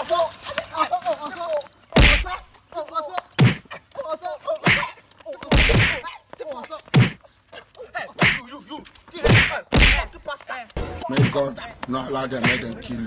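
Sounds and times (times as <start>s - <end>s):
punches and slaps hitting: 2.0s - 2.4s, 3.4s - 3.7s, 4.6s - 6.0s, 6.9s - 7.2s, 8.2s - 8.5s, 9.2s - 10.3s, 11.1s - 12.8s.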